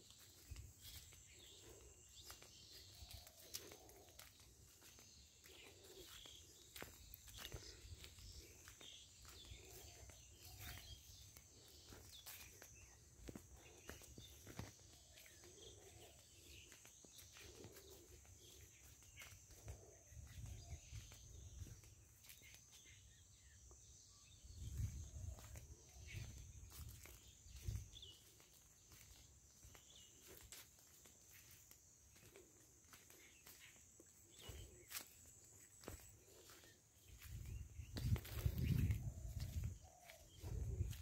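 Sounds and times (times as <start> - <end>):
footsteps through grass: 0.0 - 23.2, 24.4 - 41.0
wind rumbling on microphone: 24.4 - 28.1, 37.2 - 41.0.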